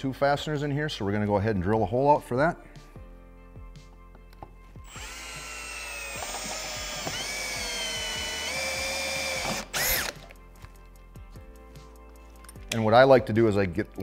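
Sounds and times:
cordless drill whine: 4.8s - 10.2s.

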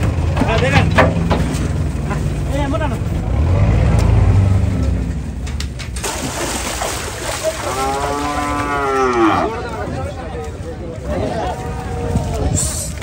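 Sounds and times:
cow mooing: 7.7s - 9.7s.

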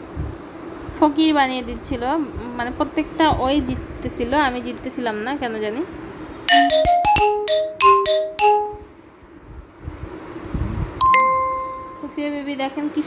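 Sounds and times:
electronic chime jingle: 6.5s - 8.9s, 11.0s - 12.2s
ringing ding: 6.5s - 8.9s, 11.0s - 12.3s.

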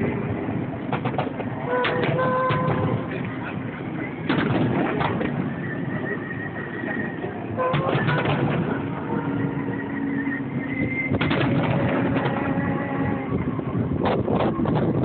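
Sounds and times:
fireworks bangs and crackles: 0.0s - 6.1s, 7.7s - 9.5s, 11.0s - 13.0s.

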